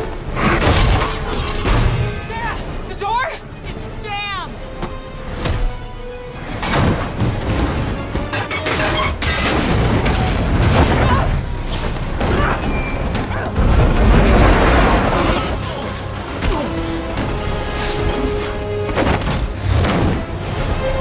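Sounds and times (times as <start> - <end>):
dramatic score music: 0.0 - 21.0
heavy impacts and metal crashes: 6.5 - 17.7.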